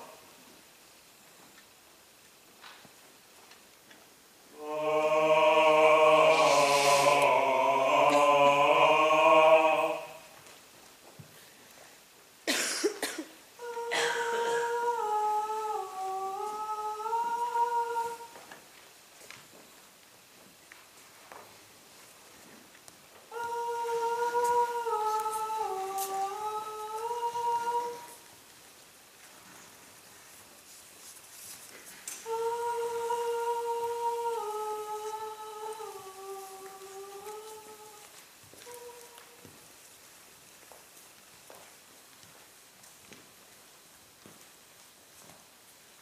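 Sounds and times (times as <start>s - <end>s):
person humming a slow tune: 4.5s - 10.4s, 13.6s - 18.6s, 23.3s - 28.3s, 32.1s - 39.6s
voices singing a held chord: 4.5s - 10.4s, 13.0s - 18.6s, 23.3s - 28.3s, 32.2s - 39.6s.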